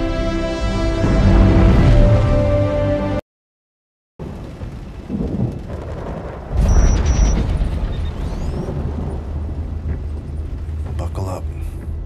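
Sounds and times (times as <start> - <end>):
deep rumble: 4.2 - 12.0.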